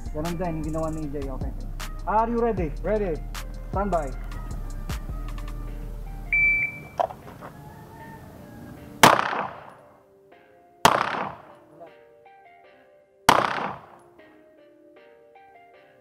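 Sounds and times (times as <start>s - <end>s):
shot timer beep: 6.3s - 7.0s
pistol shots with echo: 9.0s - 9.9s, 10.8s - 11.6s, 13.3s - 14.1s.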